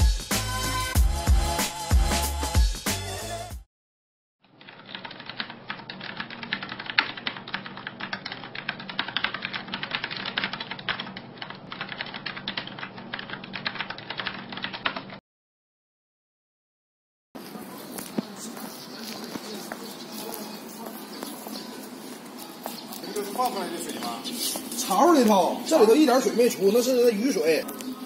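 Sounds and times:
keyboard typing clicks: 4.6s - 15.1s.

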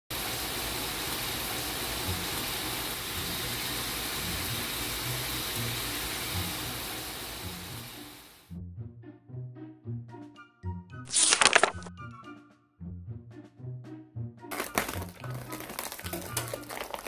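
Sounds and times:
meat sizzling in oil: 0.1s - 8.5s, 14.5s - 17.0s.

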